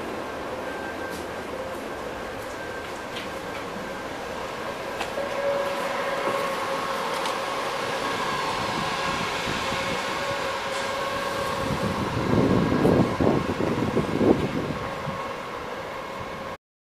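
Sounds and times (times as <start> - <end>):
tram equipment high whine: 0.0 - 16.6
wind buffeting microphone: 7.8 - 15.6.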